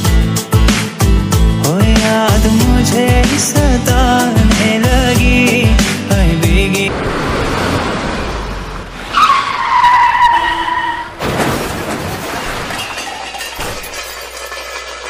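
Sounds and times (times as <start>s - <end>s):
car tyres screeching: 6.9s - 11.4s
car crash: 6.9s - 15.0s.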